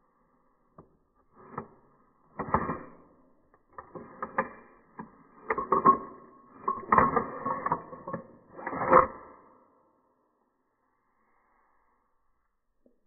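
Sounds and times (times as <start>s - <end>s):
pistol slide clicks and scrapes: 1.2s - 9.5s.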